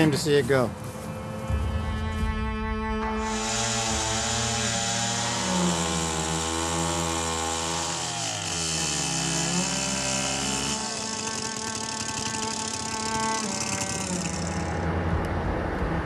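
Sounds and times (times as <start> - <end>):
chainsaw cutting wood: 3.2 - 14.8.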